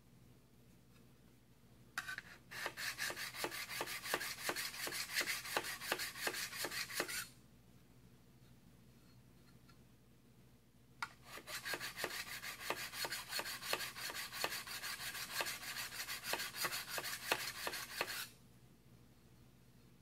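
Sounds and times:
sharpening stone rasping on steel: 0:02.0 - 0:07.3, 0:11.0 - 0:18.3.

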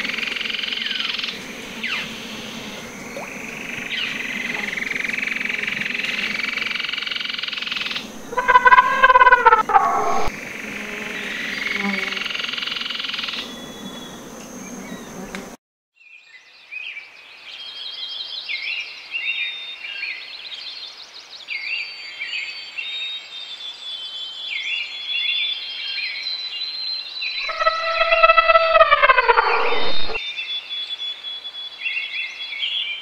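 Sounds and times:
small animals chirping: 0:08.2 - 0:10.3, 0:27.4 - 0:30.2.

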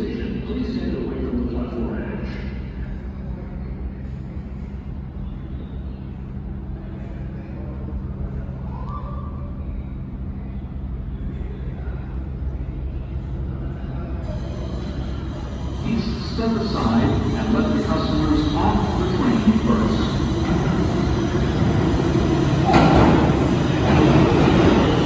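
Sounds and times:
subway train rumble in tunnel: 0:00.0 - 0:25.0.

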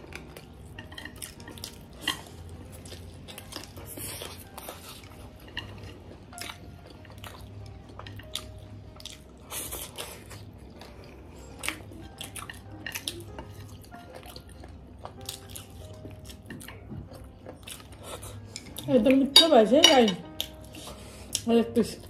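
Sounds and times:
chewing and biting food: 0:00.0 - 0:19.1
chopsticks tapping ceramic plates: 0:19.3 - 0:20.5.

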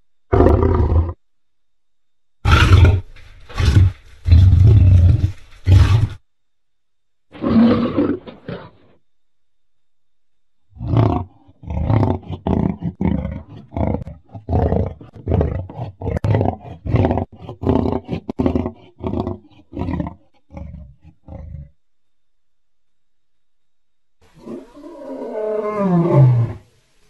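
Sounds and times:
lion roaring: 0:00.3 - 0:01.2, 0:02.4 - 0:06.2, 0:07.3 - 0:09.0, 0:10.8 - 0:21.8, 0:24.4 - 0:26.7.

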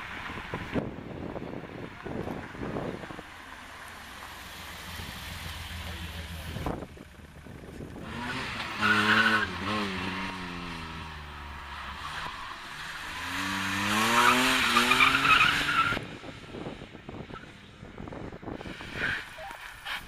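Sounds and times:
car engine revving hard: 0:08.0 - 0:16.1.

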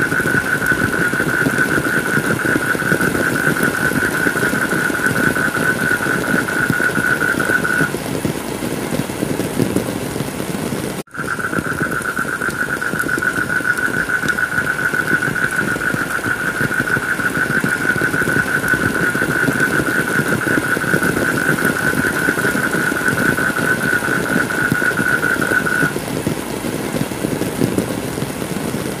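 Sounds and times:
heavy rain patter: 0:00.0 - 0:29.0.

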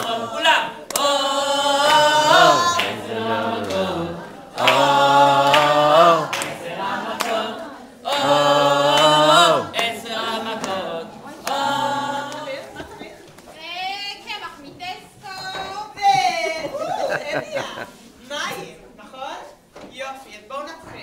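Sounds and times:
group singing without instruments: 0:00.0 - 0:13.3.

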